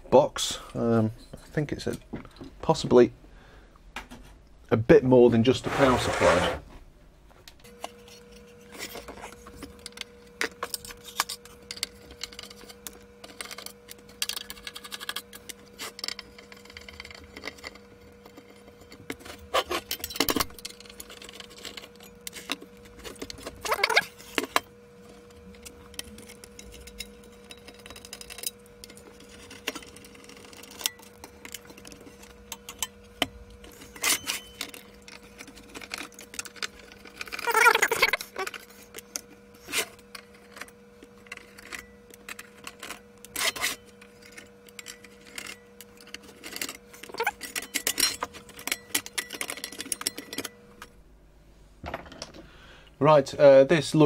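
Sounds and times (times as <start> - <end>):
faint steady hum: 0.0 - 54.0
rattling metal scrape: 5.5 - 6.7
screwdriver undoing screws: 46.1 - 50.3.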